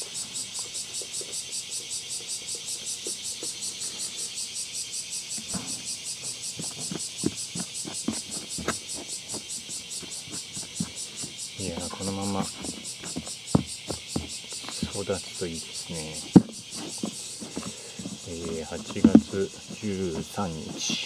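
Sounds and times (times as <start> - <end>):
insects chirping: 0.0 - 21.0
metal spoon scraping soil: 6.4 - 21.0.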